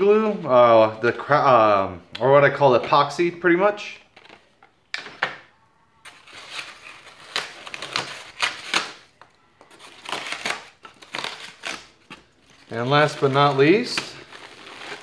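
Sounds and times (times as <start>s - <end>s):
polystyrene packaging rubbing: 9.8s - 15.0s
plastic bag rustling: 12.2s - 15.0s.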